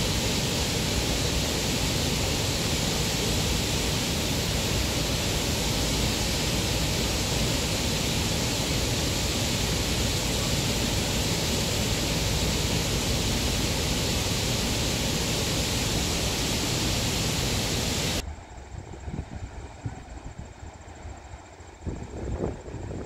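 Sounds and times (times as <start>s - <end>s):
turbulent water rushing: 0.0s - 18.2s.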